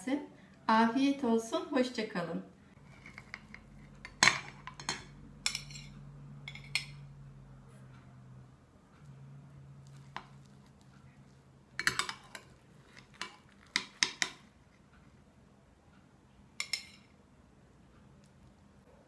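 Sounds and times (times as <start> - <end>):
metal utensil clinking on glass: 11.8 - 12.5.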